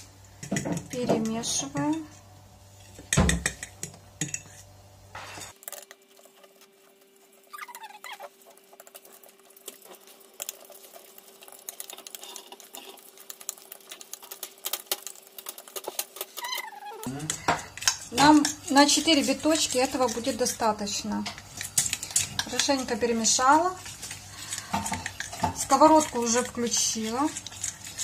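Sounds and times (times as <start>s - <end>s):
fork whisking batter on a plate: 2.8s - 4.6s, 7.7s - 28.0s.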